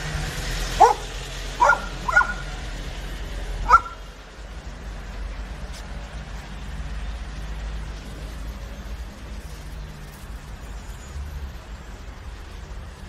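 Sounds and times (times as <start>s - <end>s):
dog barking: 0.8s - 2.6s, 3.6s - 4.0s.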